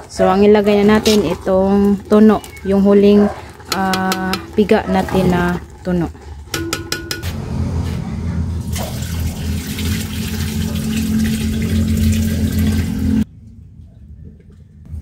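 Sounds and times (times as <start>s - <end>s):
liquid pouring and splashing: 8.7s - 13.2s.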